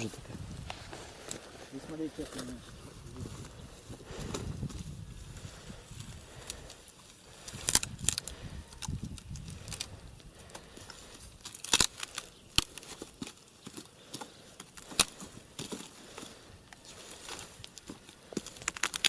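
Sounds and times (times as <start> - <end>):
dry branches snapping: 5.4 - 19.0.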